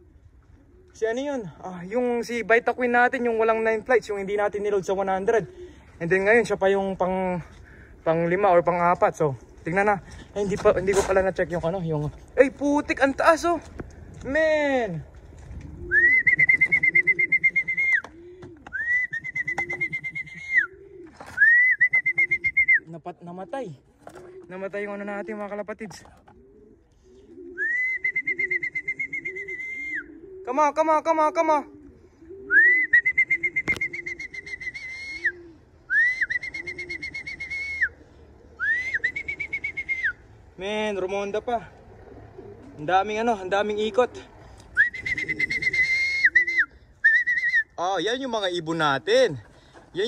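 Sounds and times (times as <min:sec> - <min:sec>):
pigeons cooing: 0:00.0 - 0:02.3, 0:02.9 - 0:12.4, 0:14.9 - 0:47.1
trilled whistle: 0:16.0 - 0:18.1, 0:18.7 - 0:20.7, 0:21.4 - 0:22.8, 0:27.6 - 0:30.1, 0:32.5 - 0:37.9, 0:38.6 - 0:40.2, 0:44.8 - 0:47.7.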